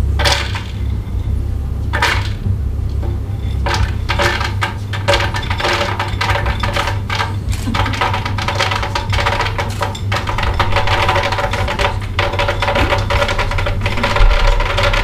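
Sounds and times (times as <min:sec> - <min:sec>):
steady low hum: 0:00.0 - 0:15.0
nuts clattering into glass jar: 0:03.6 - 0:15.0.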